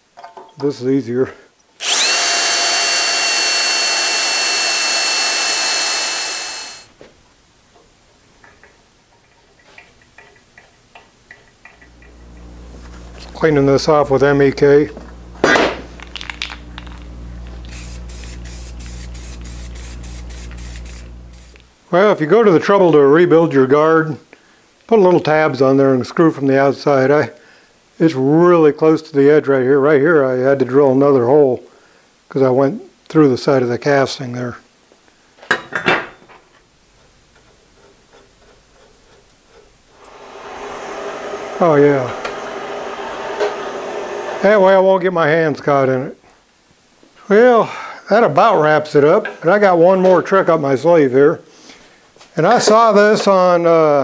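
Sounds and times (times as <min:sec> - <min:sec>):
steady whirring: 0:01.8 - 0:06.9, 0:11.8 - 0:21.7, 0:39.9 - 0:44.4
light ticks of metal parts: 0:07.8 - 0:12.2
steady low hum: 0:11.8 - 0:21.7
spray paint can hissing: 0:15.9 - 0:21.6.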